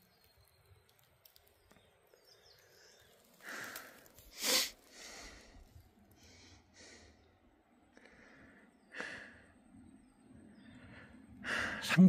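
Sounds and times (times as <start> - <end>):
person breathing hard: 3.4 - 7.3, 7.9 - 9.6, 10.7 - 11.8.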